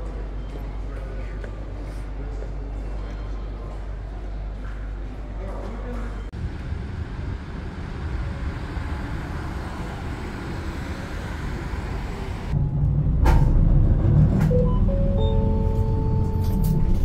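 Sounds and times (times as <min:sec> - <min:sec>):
vehicle rumble and hiss: 0:06.3 - 0:15.1.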